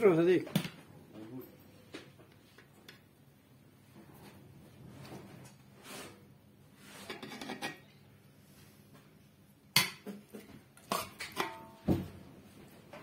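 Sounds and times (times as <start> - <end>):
spoon clinking against metal pots: 10.8 - 11.8.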